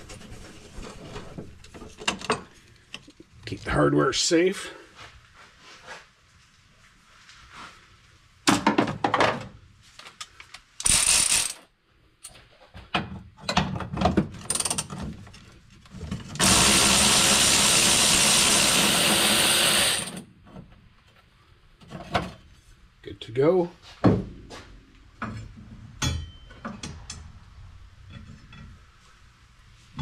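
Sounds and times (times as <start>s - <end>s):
electric ratchet running: 10.8s - 11.6s, 16.4s - 20.2s.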